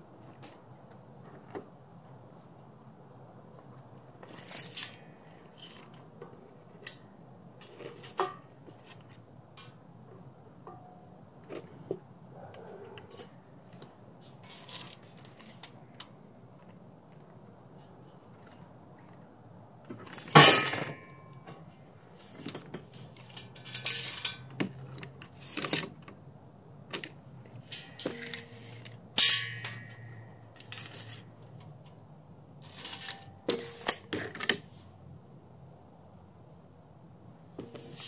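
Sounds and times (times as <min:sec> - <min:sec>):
metal clanks and scrapes: 0:04.2 - 0:06.0, 0:06.8 - 0:09.8, 0:20.0 - 0:21.3, 0:22.2 - 0:24.6, 0:27.6 - 0:31.3, 0:32.6 - 0:34.7.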